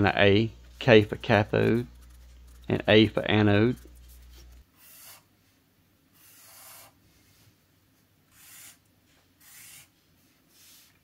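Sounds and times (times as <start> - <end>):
marker scratching on paper: 0.8 - 5.3, 6.2 - 7.0, 8.3 - 8.8, 9.4 - 9.9.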